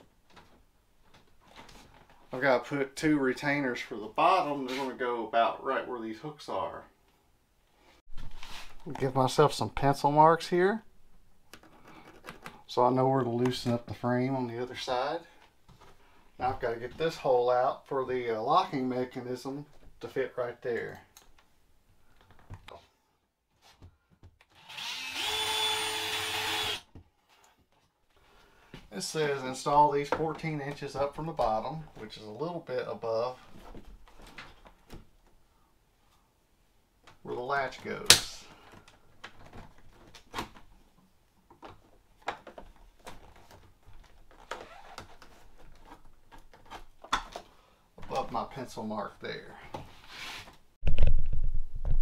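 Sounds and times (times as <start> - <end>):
cordless drill spinning: 24.5 - 26.9.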